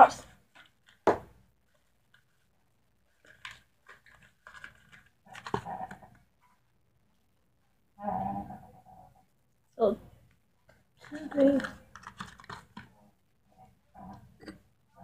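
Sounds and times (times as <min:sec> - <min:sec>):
plastic bottle clicks and rustles: 0:03.1 - 0:06.2, 0:11.0 - 0:13.0.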